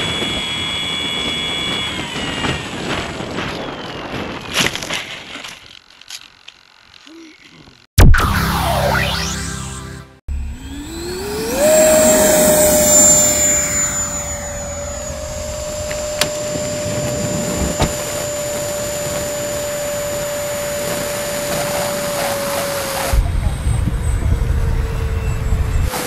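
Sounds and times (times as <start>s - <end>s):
electric ducted fan whining: 0.0s - 4.6s, 10.3s - 26.0s.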